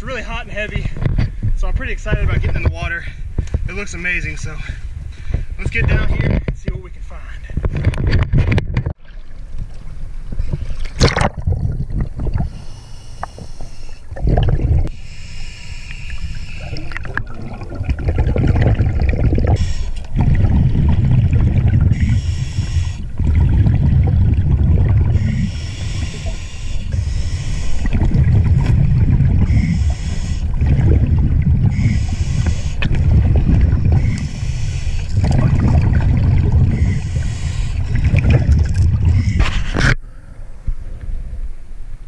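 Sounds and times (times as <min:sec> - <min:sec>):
exhaled bubbles rumble: 0:07.6 - 0:12.6, 0:14.0 - 0:15.0, 0:16.1 - 0:40.0
regulator inhale hiss: 0:12.4 - 0:14.1, 0:14.9 - 0:16.9, 0:19.6 - 0:20.0, 0:21.9 - 0:23.0, 0:25.2 - 0:28.0, 0:29.5 - 0:30.6, 0:31.7 - 0:32.8, 0:33.9 - 0:35.2, 0:36.7 - 0:38.0.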